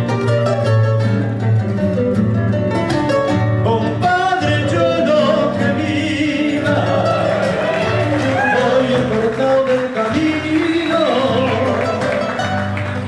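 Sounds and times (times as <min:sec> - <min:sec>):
acoustic guitars strummed: 0:00.0 - 0:13.0
man singing: 0:03.6 - 0:12.5.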